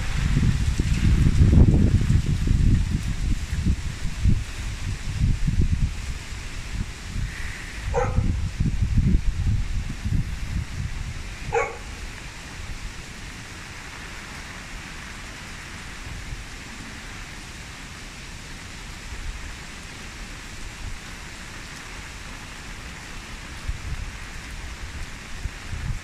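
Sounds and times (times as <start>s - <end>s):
low rumbling: 0.0s - 12.2s
rain on foliage: 0.0s - 26.0s.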